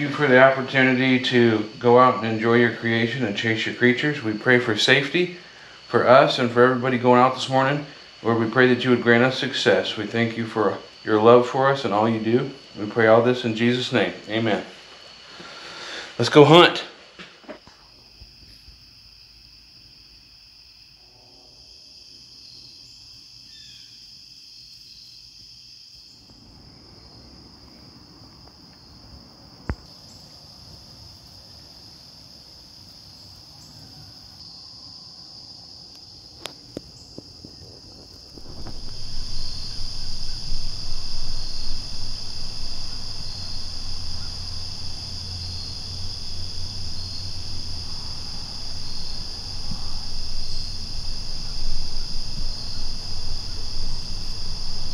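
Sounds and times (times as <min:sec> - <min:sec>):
insects chorus: 0:00.0 - 0:54.9
low rumbling: 0:38.2 - 0:54.9.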